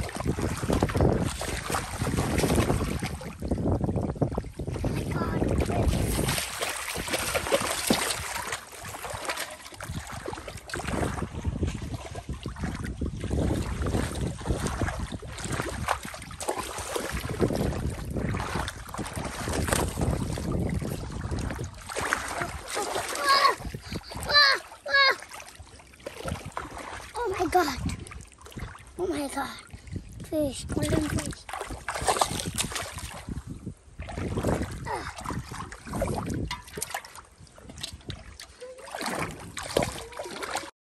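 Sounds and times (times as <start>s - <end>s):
knocks and wet slaps: 0.0s - 3.2s, 5.6s - 12.9s, 13.8s - 20.7s, 30.9s - 33.3s, 35.4s - 40.7s
water sloshing and splashing: 0.0s - 40.7s
wind noise on microphone: 0.0s - 40.7s
water splashing in metal pot: 35.3s - 40.7s.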